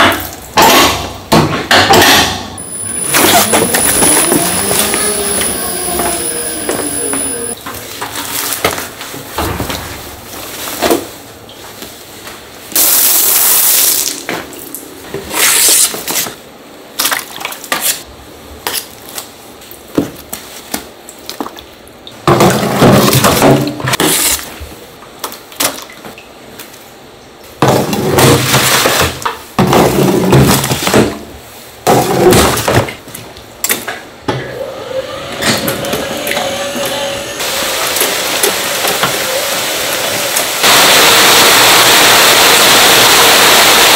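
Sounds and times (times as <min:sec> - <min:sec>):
hiss: 0:12.8 - 0:14.1, 0:37.4 - 0:43.9.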